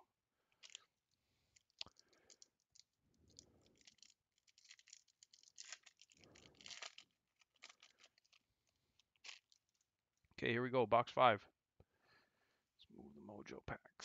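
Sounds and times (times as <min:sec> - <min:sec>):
foil wrapper crinkling and tearing: 0:00.6 - 0:00.9, 0:01.5 - 0:09.8.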